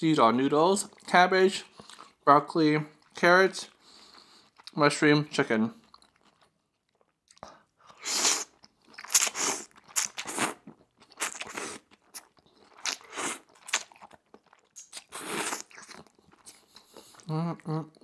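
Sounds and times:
chewing mouth sounds: 5.8s - 18.0s.

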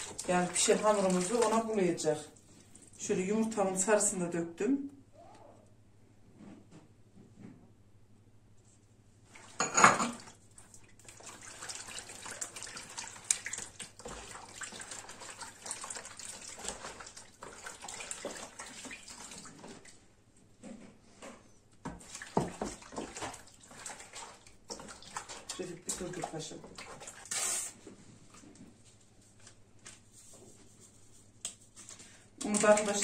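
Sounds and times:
batter sloshing in a bowl: 0.0s - 3.6s, 9.3s - 20.1s, 21.8s - 33.0s.

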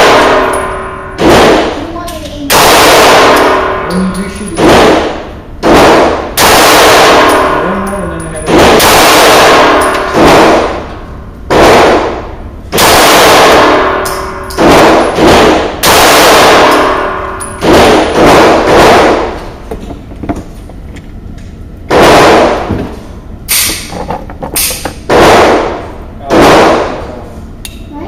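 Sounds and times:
pistol shots with echo: 0.0s - 1.8s, 2.5s - 19.5s, 21.9s - 22.7s, 24.7s - 27.2s.

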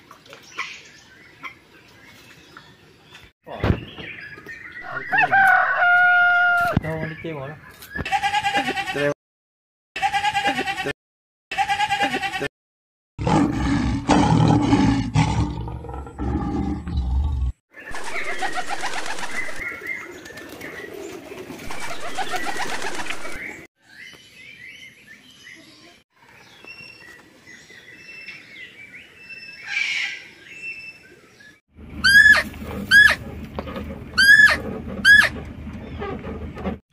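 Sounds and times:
wings fluttering: 17.8s - 23.7s
pigeons cooing: 17.9s - 23.6s.

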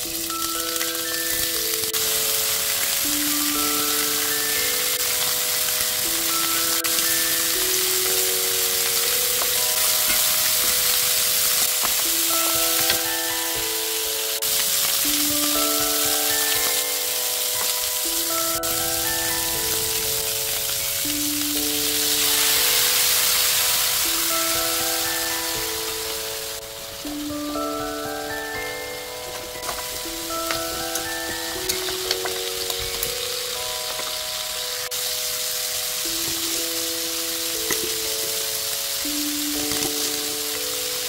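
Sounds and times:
plinking bell-like melody: 0.0s - 41.0s
ribs sizzling in a frying pan: 0.0s - 41.0s.

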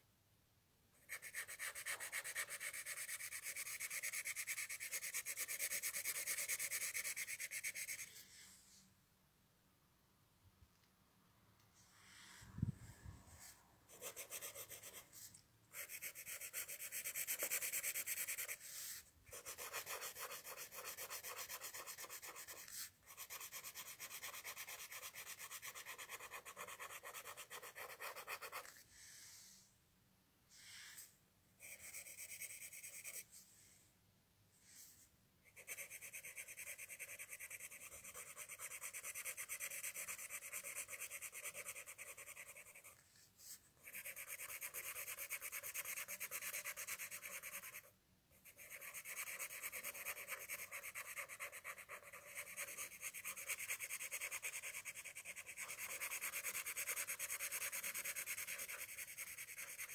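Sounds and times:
pencil scratching on paper: 1.0s - 8.2s, 13.4s - 28.8s, 31.6s - 33.3s, 35.5s - 59.9s.

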